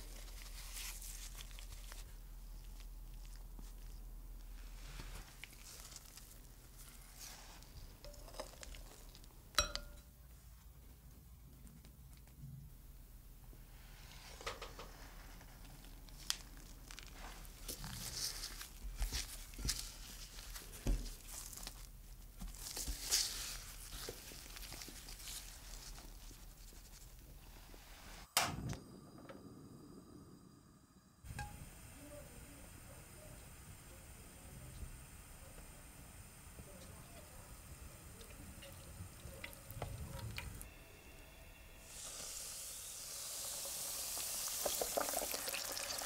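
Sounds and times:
rustling in flour: 0.0s - 9.5s, 13.7s - 28.3s
chopsticks clinking on glass bowl: 9.6s - 10.1s.

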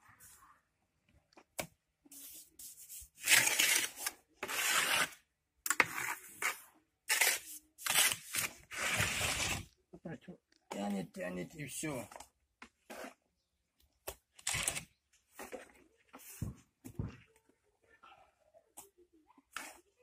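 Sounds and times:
trowel scraping mortar on metal: 3.2s - 9.7s.

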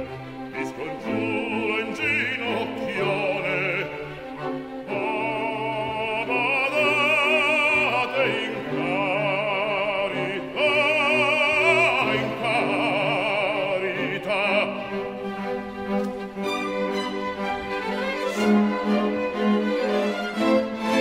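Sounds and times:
orchestra playing: 0.0s - 21.0s
operatic baritone singing: 0.4s - 15.3s.

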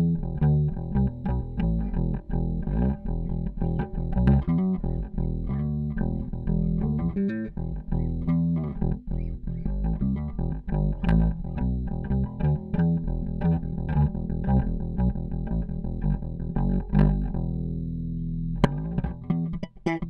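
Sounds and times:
electric bass plucked fingerstyle: 0.0s - 20.0s.

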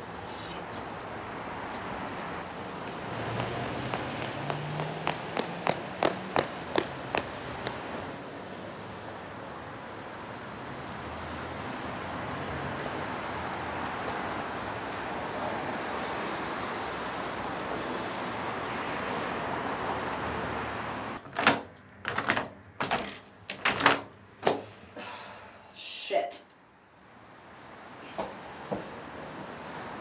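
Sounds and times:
outdoor background hiss: 0.0s - 11.0s, 20.9s - 30.0s.

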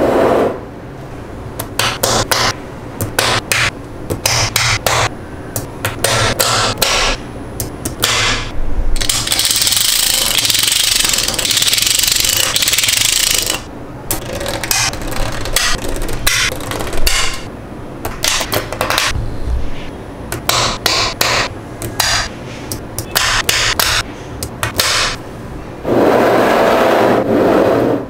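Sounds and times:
magnetic balls clicking together: 9.0s - 19.2s.

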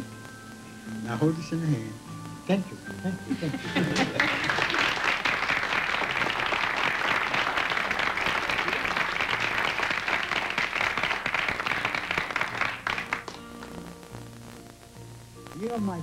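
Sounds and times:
audience applauding: 3.6s - 13.8s.

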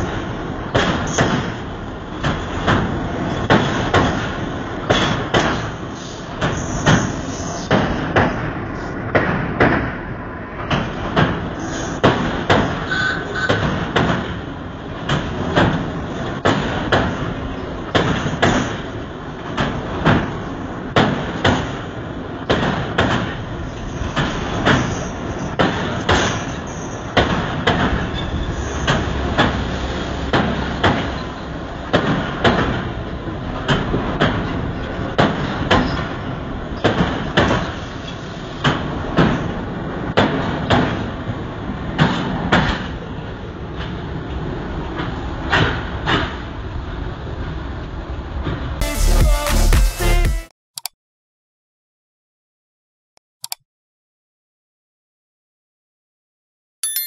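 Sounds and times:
train wheels clattering over rail joints: 0.0s - 10.0s, 10.6s - 46.6s
train rushing rumble: 0.0s - 48.8s.

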